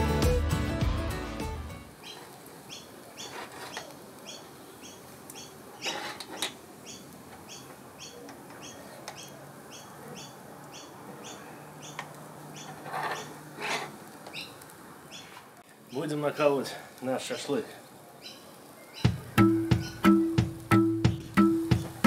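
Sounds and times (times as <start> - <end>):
small bird chirping: 2.0 - 13.4, 14.3 - 16.2, 18.2 - 20.4.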